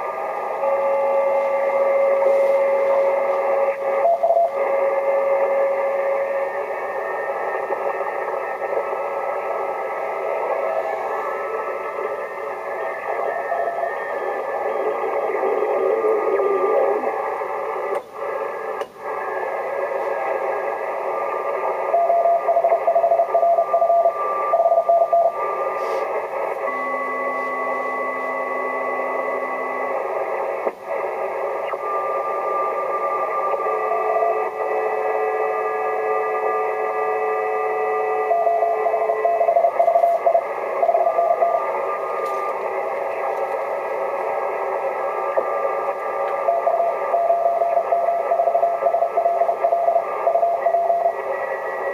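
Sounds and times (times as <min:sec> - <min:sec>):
radio band hiss: 0:00.0 - 0:51.9
morse code tones: 0:20.7 - 0:51.9.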